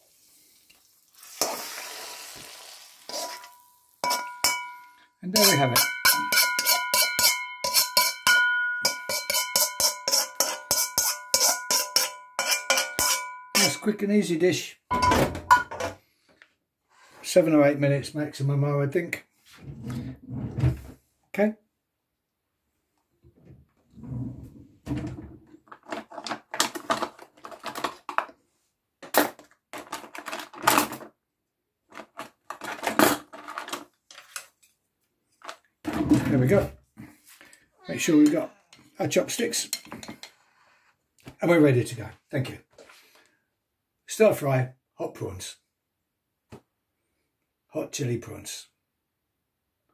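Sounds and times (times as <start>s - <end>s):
metal spatula tapping a ringing wok: 3.2s - 13.8s
cutlery clattering in a drawer: 29.0s - 31.1s, 31.9s - 34.6s.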